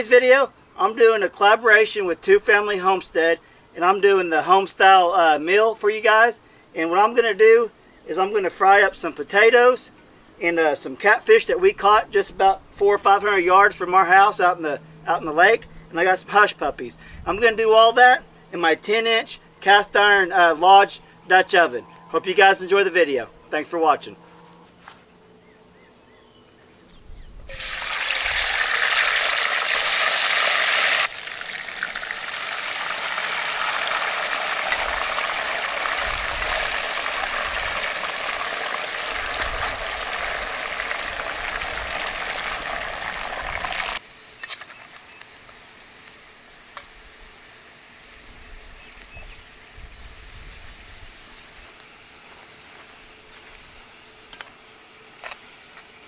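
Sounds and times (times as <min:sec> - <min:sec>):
potatoes sizzling in hot oil: 0:27.5 - 0:44.0.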